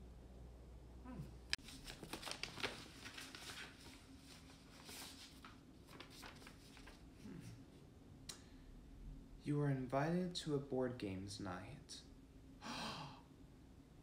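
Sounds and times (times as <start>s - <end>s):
paper rustling and crinkling: 1.6s - 7.6s.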